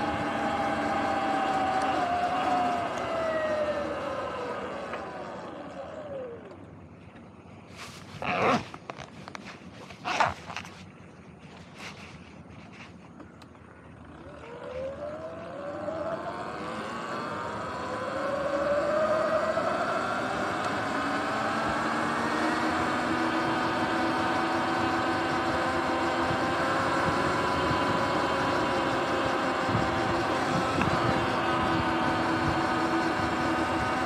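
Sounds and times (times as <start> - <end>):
electric motor whine: 0.0 - 6.7, 14.0 - 34.0
tyre noise: 7.7 - 10.9.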